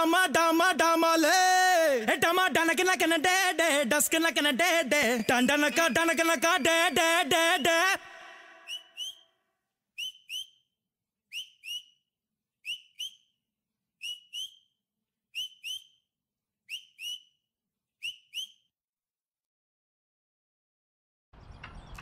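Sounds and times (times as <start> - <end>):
high whistle-like double chirps: 8.6 - 9.2, 11.3 - 12.0.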